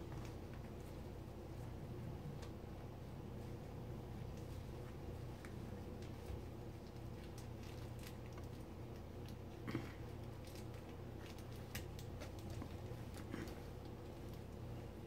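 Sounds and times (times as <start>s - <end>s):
low steady hum: 0.0s - 15.0s
puppies chewing rope toy: 4.1s - 14.8s.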